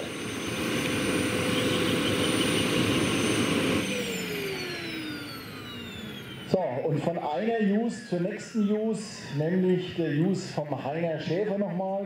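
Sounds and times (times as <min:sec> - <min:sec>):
turbine high whine: 0:00.0 - 0:12.0.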